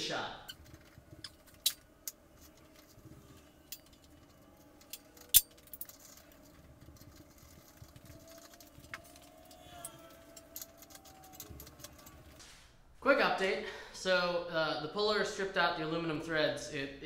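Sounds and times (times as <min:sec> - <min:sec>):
metal tools clinking: 0:00.4 - 0:12.4.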